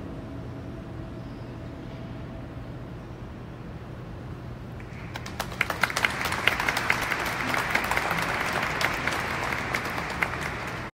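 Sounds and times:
audience applause: 0:04.9 - 0:10.9.

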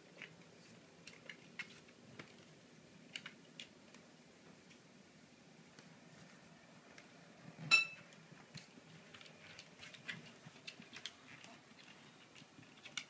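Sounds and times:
sharp ringing clink: 0:07.7 - 0:08.0.

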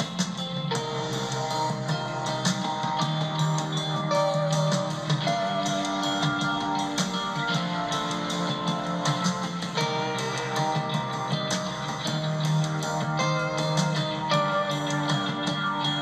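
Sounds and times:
guitar music: 0:00.0 - 0:16.0
steady drum beat: 0:00.0 - 0:16.0.

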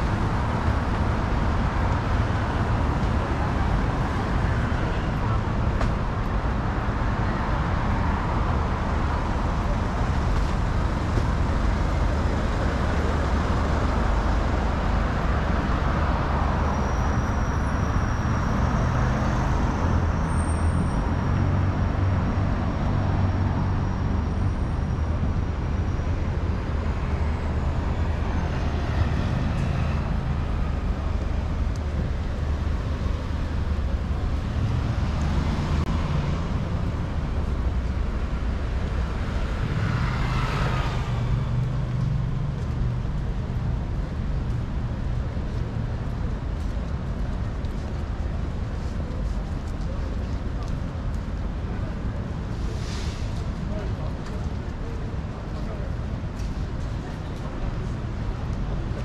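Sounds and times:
passing vehicles engine hum: 0:00.0 - 0:59.0
vehicle engines: 0:00.0 - 0:59.0.

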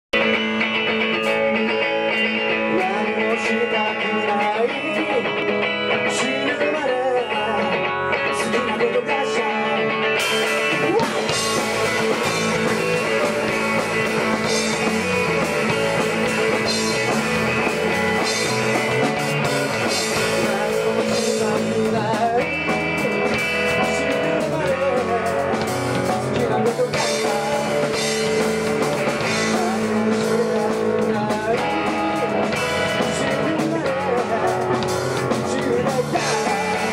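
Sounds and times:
electric guitar: 0:00.1 - 0:36.9
rock band playing: 0:00.1 - 0:36.9
drums with cymbals: 0:10.2 - 0:36.9.

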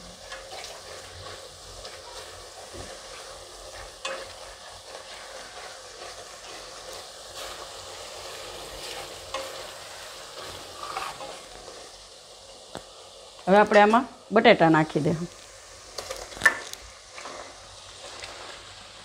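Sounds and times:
spatula scraping pan: 0:00.0 - 0:12.0, 0:16.0 - 0:18.6
spice paste sizzling in oil: 0:00.0 - 0:19.0.

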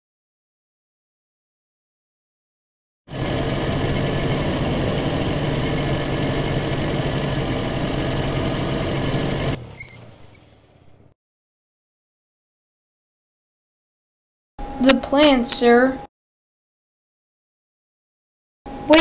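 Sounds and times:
truck engine running: 0:03.1 - 0:10.4.

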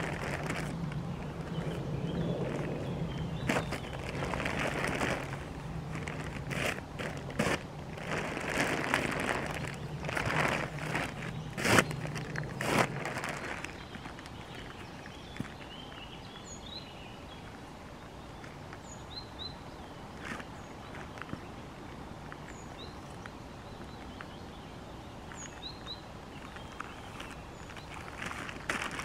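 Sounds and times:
rustle: 0:00.0 - 0:29.0
steady outdoor hiss: 0:00.0 - 0:29.0.

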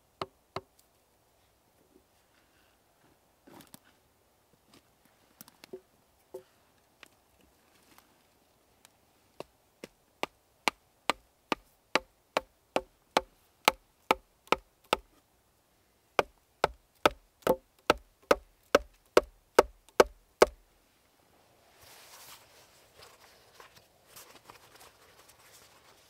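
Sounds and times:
hand tool striking wood: 0:16.2 - 0:20.6.

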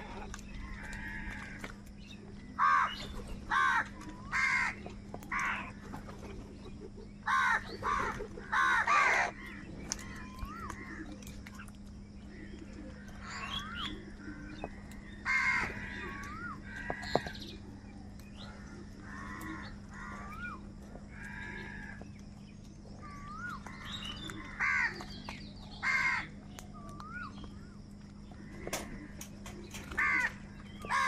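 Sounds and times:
crows cawing: 0:00.0 - 0:05.9, 0:07.2 - 0:22.3, 0:23.0 - 0:31.0
whistled bird notes: 0:26.6 - 0:27.8.

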